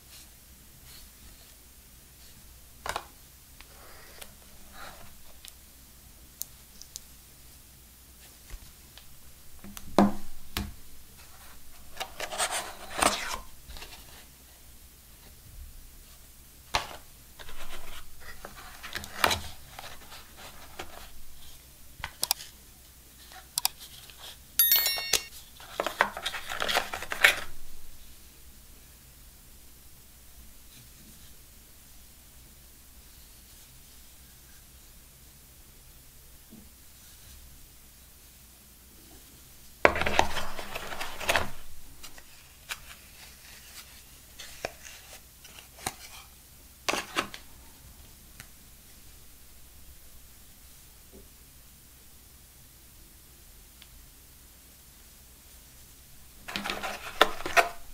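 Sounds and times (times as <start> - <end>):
electronic chime: 24.6 - 25.3
scraping and rubbing of cardboard: 56.5 - 57.8.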